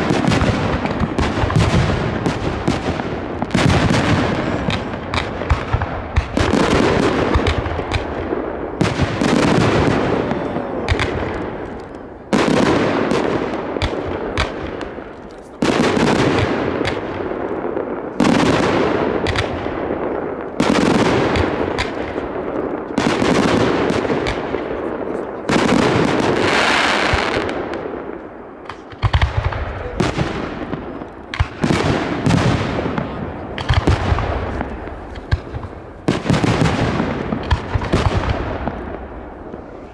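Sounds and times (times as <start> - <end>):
crackling pops: 0.0 - 12.6, 33.5 - 39.9.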